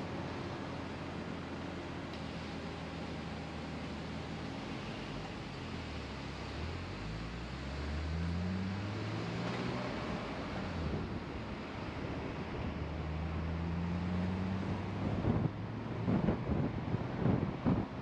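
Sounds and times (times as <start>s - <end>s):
car engine hum: 0.0s - 18.0s
road noise: 0.0s - 18.0s
wind buffeting microphone: 14.6s - 18.0s.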